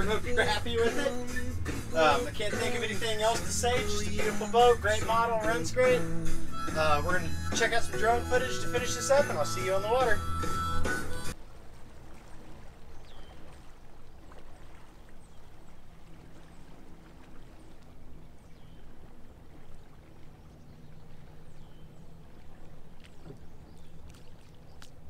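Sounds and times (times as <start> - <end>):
distant boat engine drone: 0.0 - 25.0
water noise: 0.0 - 25.0
bird chirps: 12.9 - 13.5, 18.3 - 19.0, 20.0 - 25.0.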